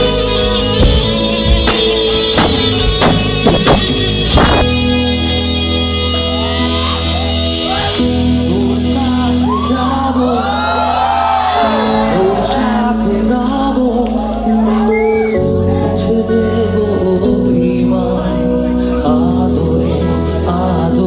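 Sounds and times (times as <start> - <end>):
bass guitar: 0.0 - 21.0
electric guitar: 0.0 - 21.0
drum hits: 0.8 - 4.9.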